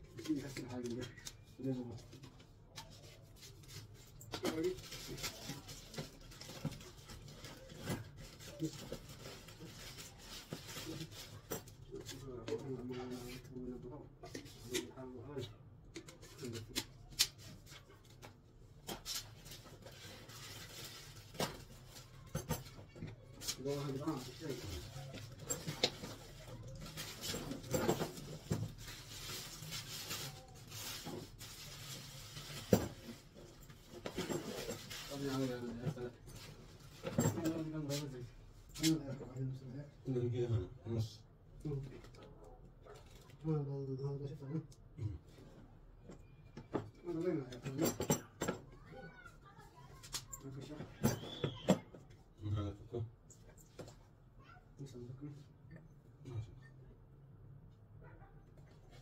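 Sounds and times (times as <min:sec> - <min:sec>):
plastic wrapping crinkling: 0:23.4 - 0:38.1.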